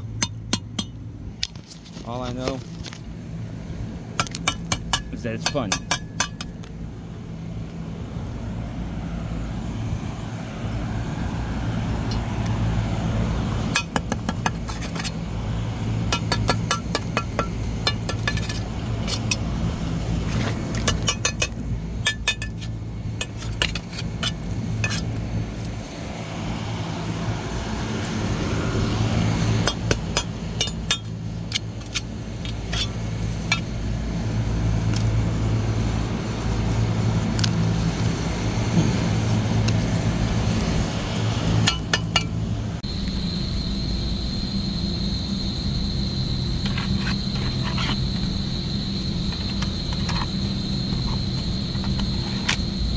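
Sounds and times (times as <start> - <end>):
steady low hum: 0.0 - 52.9.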